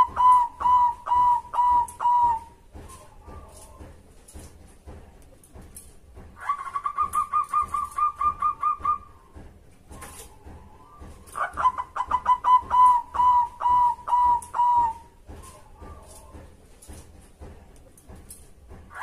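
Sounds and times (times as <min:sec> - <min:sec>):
dove cooing: 0:00.0 - 0:03.8, 0:06.4 - 0:09.2, 0:10.0 - 0:16.3.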